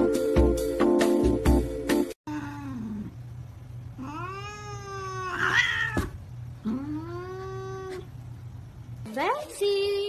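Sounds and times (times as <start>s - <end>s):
cat meowing: 4.0s - 8.1s.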